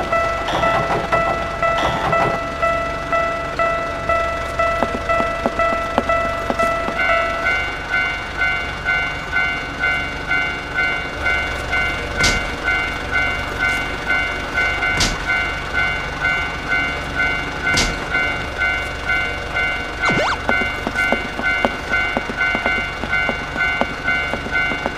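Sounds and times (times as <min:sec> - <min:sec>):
crossing warning bell clanging: 0:00.0 - 0:24.9
freight train rumble: 0:00.0 - 0:24.9.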